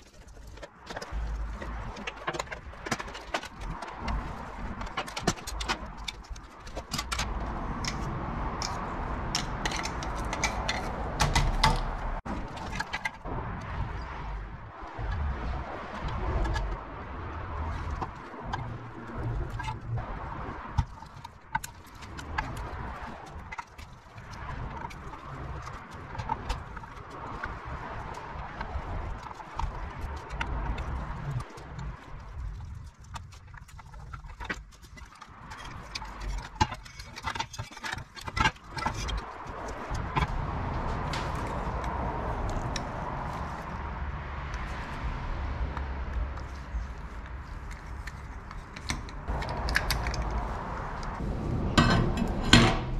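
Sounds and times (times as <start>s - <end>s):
low rumble: 49.3s - 52.9s.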